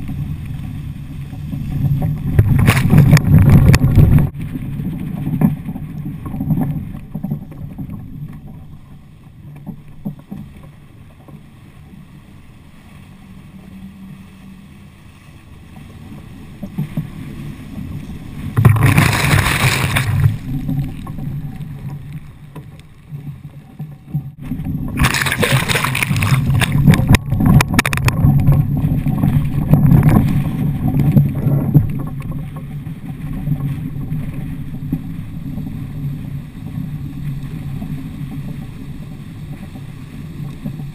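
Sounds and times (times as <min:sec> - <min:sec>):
wind buffeting microphone: 0:00.0 - 0:08.0
water rushing along hull: 0:00.0 - 0:40.9.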